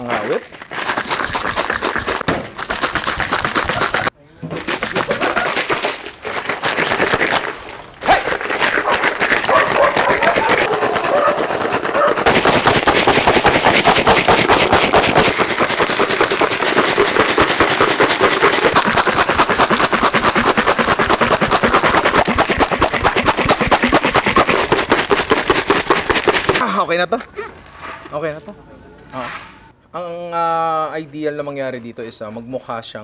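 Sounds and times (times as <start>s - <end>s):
ice rattling in shaken plastic tub: 0.0s - 26.6s.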